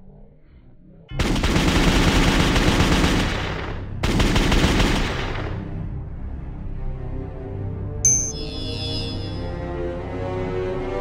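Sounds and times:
automatic gunfire bursts: 1.2s - 5.6s.

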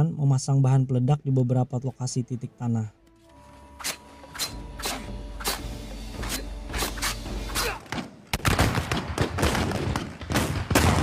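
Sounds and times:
low music drone: 2.2s - 7.8s.

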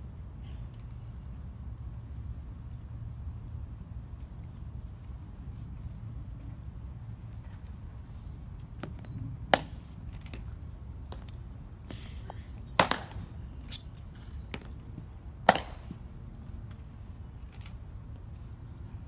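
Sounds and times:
heel clicks on stone: 11.1s - 13.8s, 14.5s - 16.0s.

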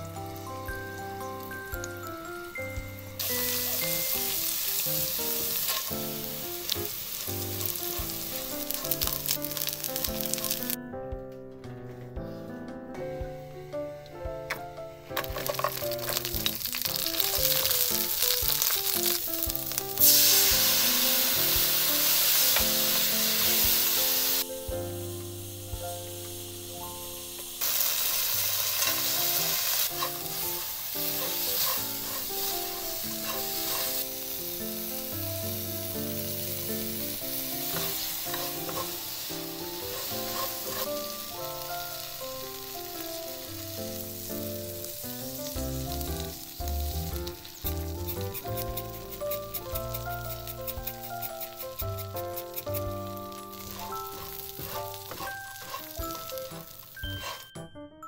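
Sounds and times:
peppers sizzling in hot oil: 0.0s - 10.8s, 15.1s - 57.7s
soft background music: 0.0s - 58.0s
spatula stirring in wok: 27.6s - 34.3s, 36.7s - 41.2s, 47.6s - 57.6s.

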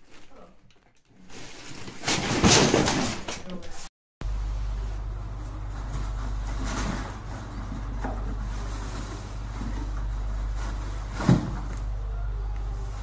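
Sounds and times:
low hum: 4.2s - 13.0s.

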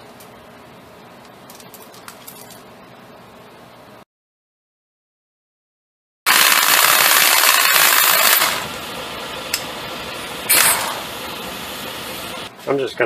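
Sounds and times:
impact wrench hammering: 10.5s - 11.1s.

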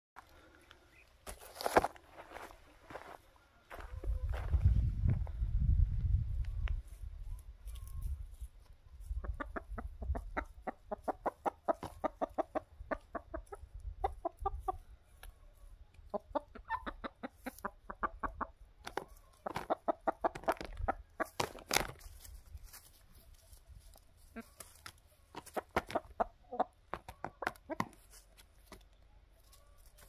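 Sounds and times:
hens clucking: 8.6s - 22.0s, 23.0s - 30.0s.

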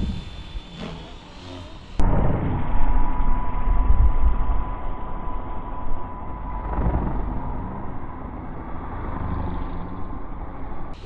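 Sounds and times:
wind buffeting microphone: 0.0s - 0.8s, 2.0s - 9.0s
distant rc helicopter whine: 0.0s - 11.0s.

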